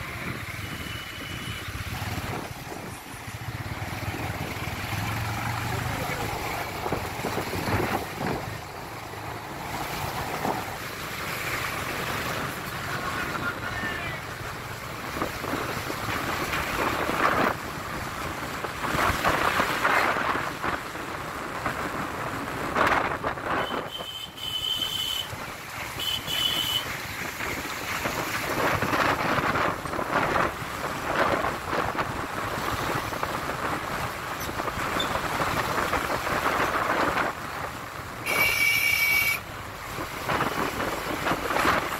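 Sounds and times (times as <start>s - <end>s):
road traffic noise: 0.0s - 41.9s
wind on microphone: 0.1s - 3.2s, 6.1s - 8.8s, 15.0s - 24.0s, 27.0s - 37.8s, 39.8s - 41.9s
short high horn beeps: 38.3s - 39.4s.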